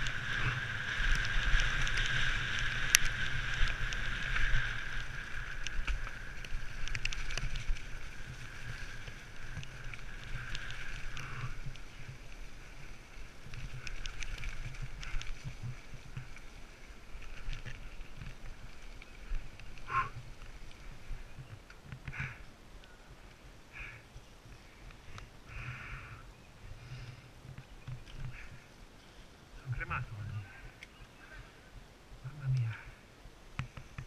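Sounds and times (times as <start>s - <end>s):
bike rattling and knocking: 0.0s - 22.4s
wind rumble on microphone: 0.0s - 34.0s.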